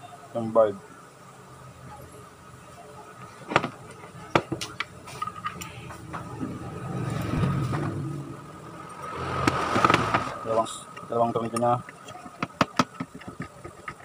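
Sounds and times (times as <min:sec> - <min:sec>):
low rumble: 0:06.0 - 0:10.5.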